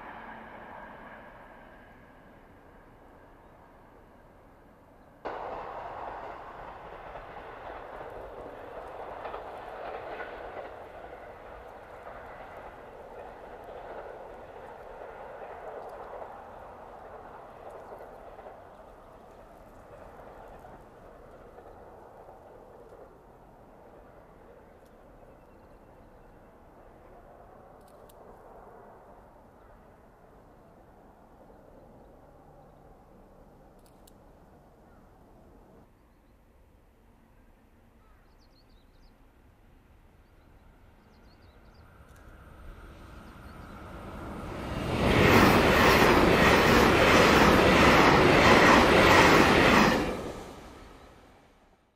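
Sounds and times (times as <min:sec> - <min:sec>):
diesel railcar engine and wheels: 0:00.0 - 0:51.9
clicks from rail joints: 0:05.2 - 0:21.8.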